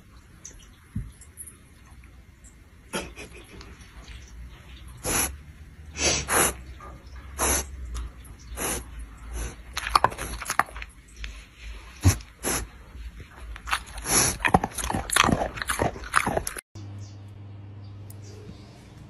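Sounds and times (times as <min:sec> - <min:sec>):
dog sniffing and snorting: 0:05.0 - 0:06.8, 0:07.4 - 0:07.8, 0:08.5 - 0:16.6.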